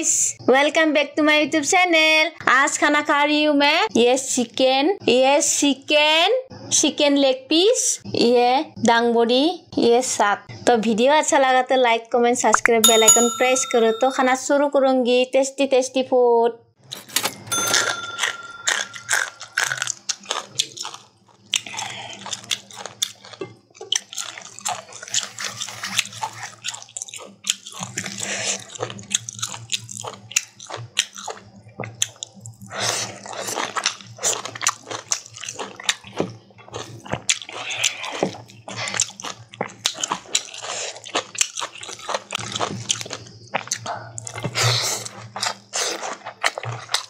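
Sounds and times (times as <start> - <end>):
short steady tone: 12.8 - 14.2
close chewing and mouth smacks: 19.4 - 47.0.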